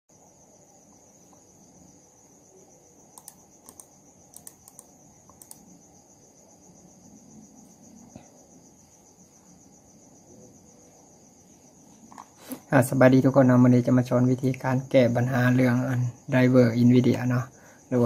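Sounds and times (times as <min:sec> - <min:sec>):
crickets chirping: 0:00.1 - 0:18.0
computer mouse buttons clicking: 0:03.2 - 0:05.7.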